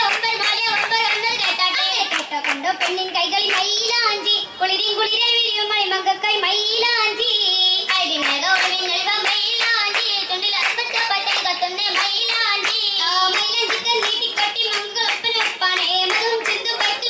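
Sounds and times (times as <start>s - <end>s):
hand-clapping: 0.0s - 4.0s, 7.9s - 17.0s
women singing: 0.0s - 17.0s.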